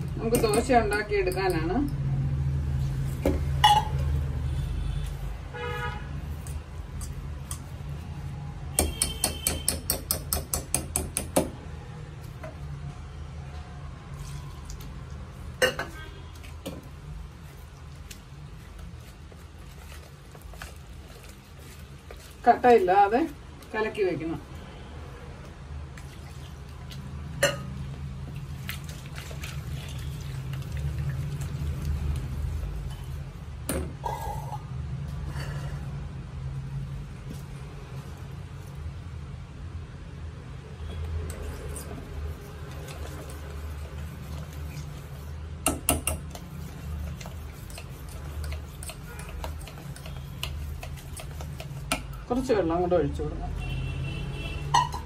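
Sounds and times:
whisk beating batter in bowl: 41.4s - 52.5s
whisk clinking against bowl: 45.7s - 52.2s.

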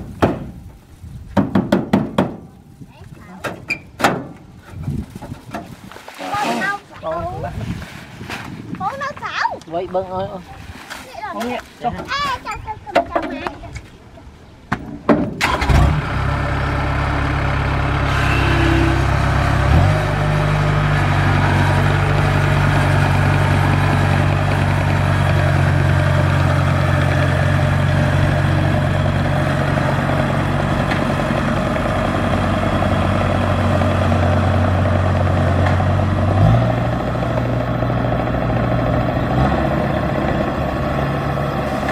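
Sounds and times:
combine harvester diesel engine: 15.4s - 41.9s.

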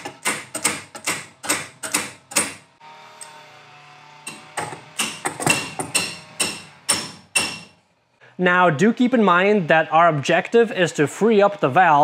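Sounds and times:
wrench knocking on metal valve: 0.0s - 2.6s, 4.3s - 7.7s.

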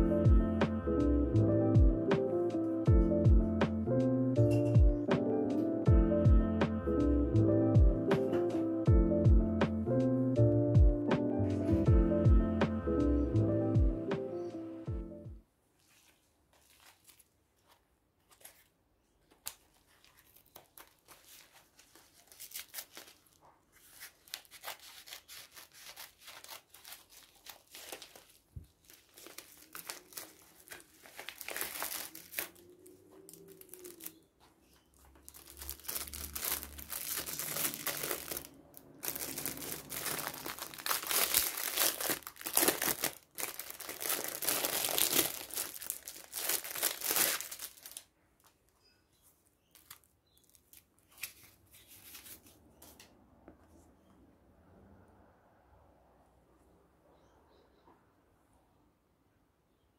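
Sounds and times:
plastic shrink wrap crinkling: 15.8s - 48.1s, 49.6s - 52.6s
plastic mailer bag rustling: 19.6s - 34.2s, 35.0s - 48.1s.

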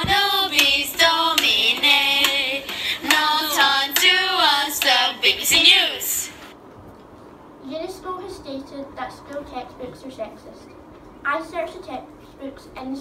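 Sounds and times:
hand claps: 0.0s - 5.0s
children singing: 0.0s - 6.2s.

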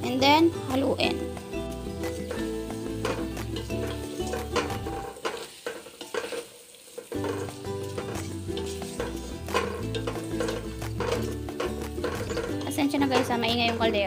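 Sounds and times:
meat sizzling in a pot: 0.0s - 14.0s
spatula scraping a pot: 1.6s - 14.0s
pot knocking on burner grate: 2.0s - 6.4s, 7.1s - 14.0s.

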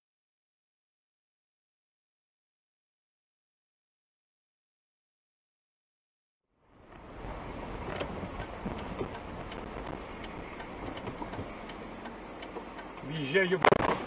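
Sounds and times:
vehicle rumble: 6.5s - 14.0s
light ticks and clicks: 7.8s - 14.0s.

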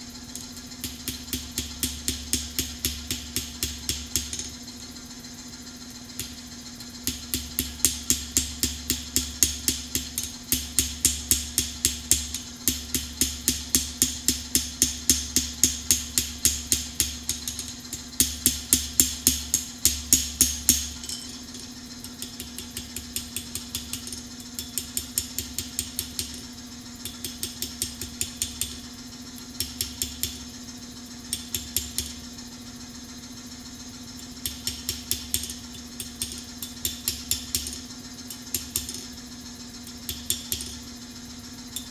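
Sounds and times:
steady hum: 0.0s - 41.9s
hammer striking steel on anvil: 0.3s - 4.5s, 7.0s - 26.4s, 34.4s - 39.1s.

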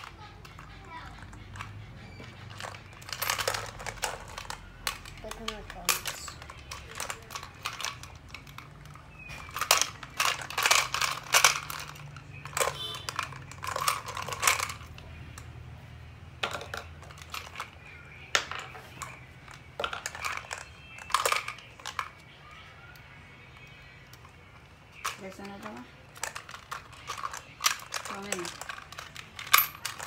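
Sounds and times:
candy balls shifting inside: 0.0s - 15.6s
plastic toy clicking and rattling: 0.0s - 15.7s, 16.4s - 30.0s.

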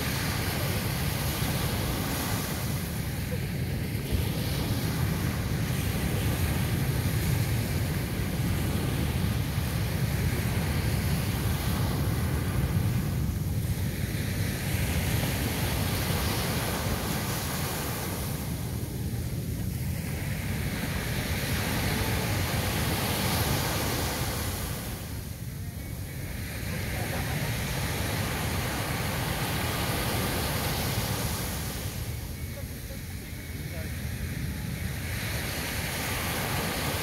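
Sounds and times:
sea waves breaking on sand: 0.0s - 37.0s
wind on microphone: 0.0s - 37.0s.

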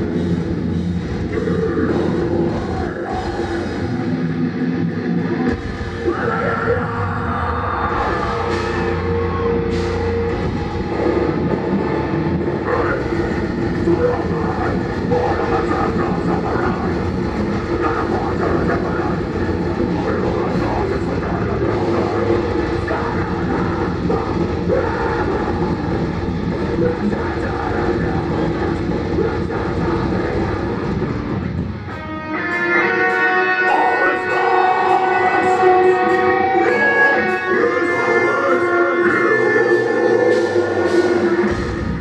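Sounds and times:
distorted electric guitars: 0.0s - 42.0s
fast dense drumming: 7.8s - 31.4s.

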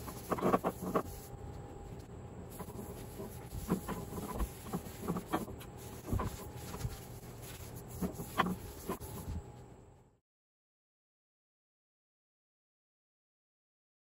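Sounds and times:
rag rubbing wood squeaking: 0.0s - 1.3s, 2.6s - 9.4s
faint steady hum: 0.0s - 10.2s.

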